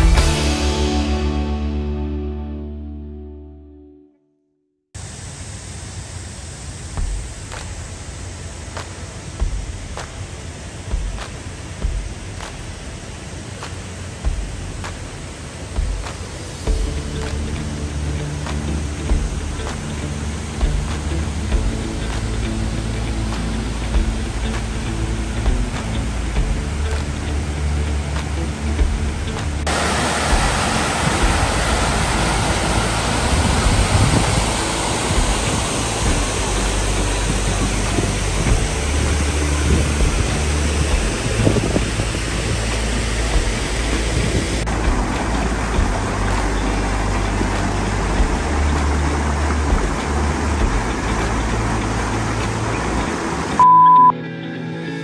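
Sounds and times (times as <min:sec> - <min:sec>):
music: 0:00.0 - 0:04.5, 0:15.7 - 0:55.0
water rushing over a dam: 0:06.6 - 0:53.6
high beep: 0:53.6 - 0:54.2.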